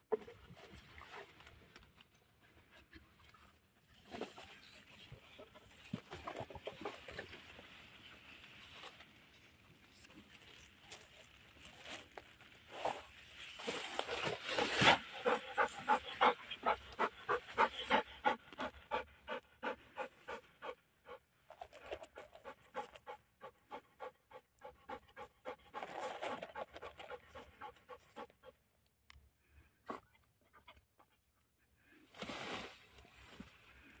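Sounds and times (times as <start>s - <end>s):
dog panting: 14.8s - 28.6s.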